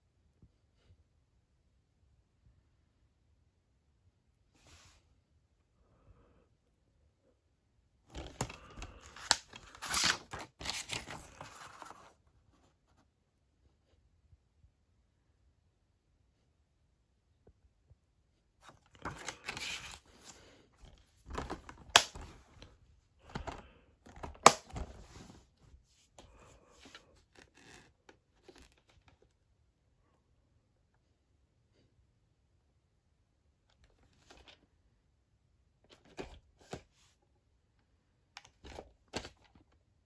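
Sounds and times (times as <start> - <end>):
plastic case rustling and clattering: 8.1 - 12.1, 18.6 - 25.5.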